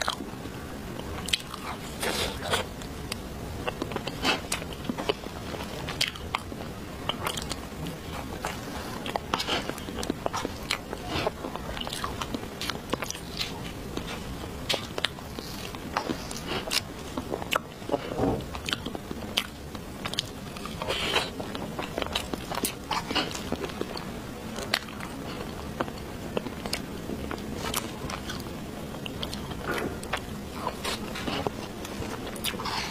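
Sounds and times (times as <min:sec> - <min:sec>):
person chewing cake: 0:00.0 - 0:32.9.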